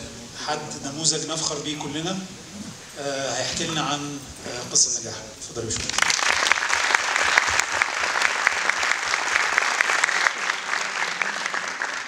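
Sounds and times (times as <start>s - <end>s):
audience applauding: 5.8s - 12.0s.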